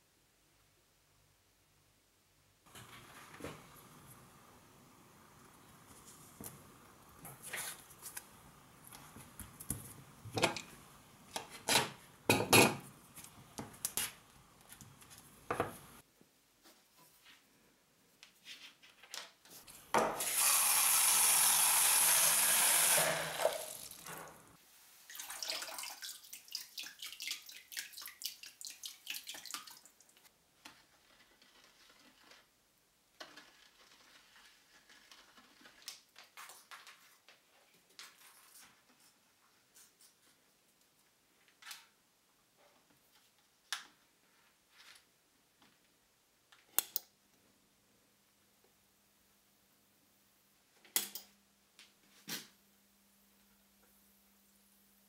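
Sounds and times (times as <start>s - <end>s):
water pouring into plastic tub: 20.2s - 24.4s, 25.1s - 29.9s.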